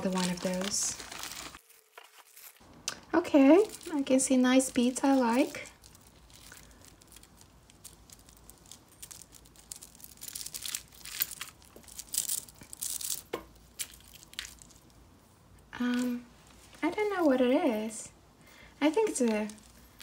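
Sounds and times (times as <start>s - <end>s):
necklaces rustling: 0.0s - 2.8s, 3.5s - 15.0s, 15.7s - 17.9s, 18.8s - 20.0s
beads and chain clicking: 4.6s - 14.9s.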